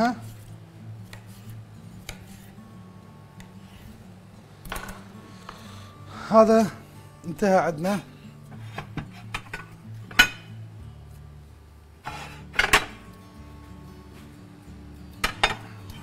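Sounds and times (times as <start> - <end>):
plates and utensils clinking: 4.6 - 5.1, 8.5 - 10.6, 12.0 - 13.0, 15.2 - 15.8.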